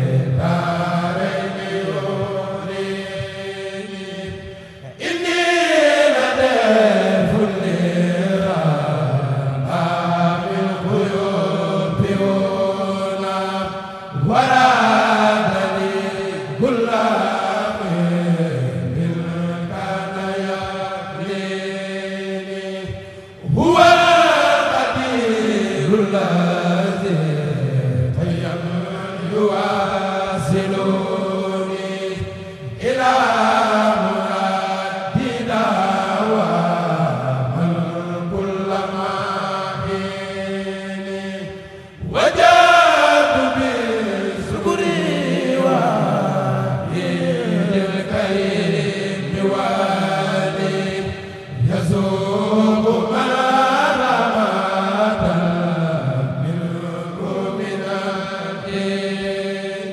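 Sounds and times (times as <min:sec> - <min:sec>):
group chanting: 0:00.0 - 0:59.9
singers breathing: 0:04.4 - 0:05.0, 0:22.9 - 0:23.5, 0:41.5 - 0:42.1.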